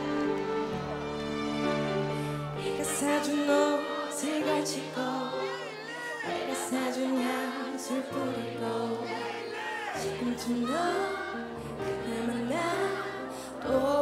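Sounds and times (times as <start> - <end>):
woman singing into a microphone: 2.6 - 5.6, 6.3 - 9.0, 10.0 - 14.0.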